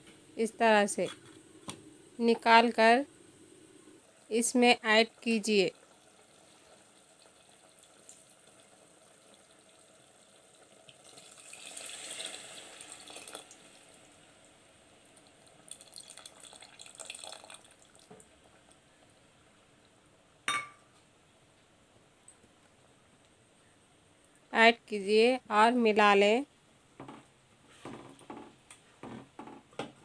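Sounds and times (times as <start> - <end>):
liquid trickling and splashing into pot: 5.8 - 14.1, 15.1 - 18.3.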